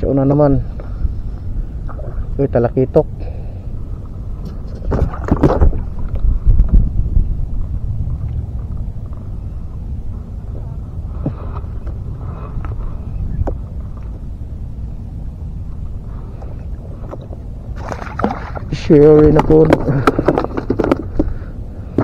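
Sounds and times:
wind on microphone: 0.0s - 22.0s
small waves lapping against box: 17.1s - 21.0s.

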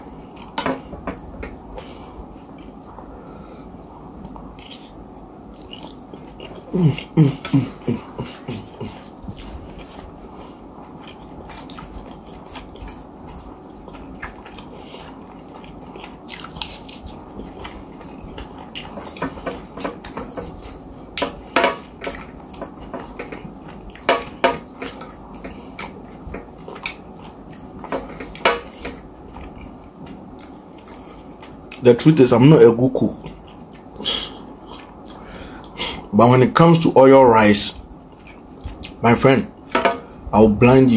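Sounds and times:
chewing and mouth sounds: 3.8s - 31.9s, 33.1s - 36.1s, 37.7s - 39.0s.

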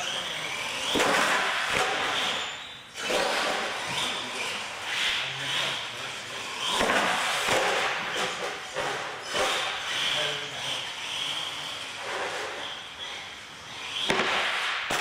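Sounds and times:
toy truck drivetrain whirring: 0.0s - 14.1s.

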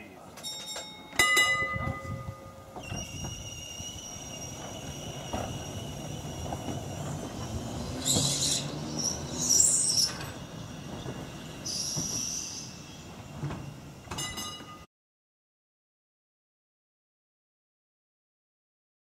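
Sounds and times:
electric tram rumbling with whine: 0.4s - 14.9s
wheels squealing on rails: 1.7s - 14.9s.

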